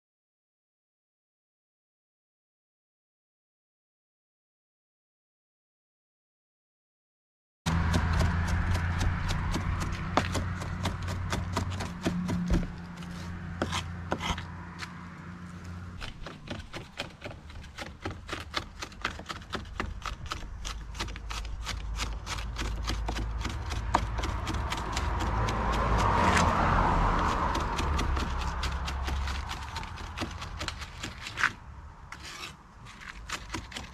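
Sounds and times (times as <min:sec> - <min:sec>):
knife chopping on wooden board: 0:07.7 - 0:14.5, 0:16.0 - 0:31.6
rubbing scrape on board: 0:10.2 - 0:14.5, 0:27.2 - 0:33.9.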